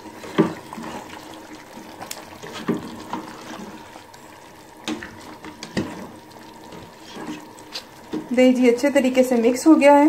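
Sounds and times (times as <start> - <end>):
gravy bubbling in pot: 0.0 - 10.0
spoon scraping pot: 5.0 - 8.2.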